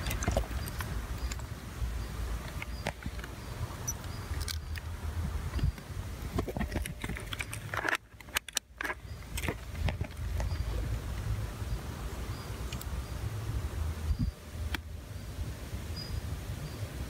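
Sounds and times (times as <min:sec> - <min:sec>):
handling clicks and rustles: 0:00.0 - 0:11.4.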